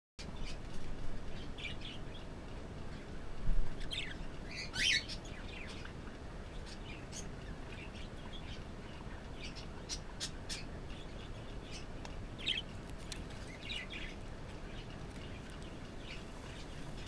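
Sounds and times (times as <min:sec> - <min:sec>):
budgerigar chirping: 0:09.4 - 0:12.8.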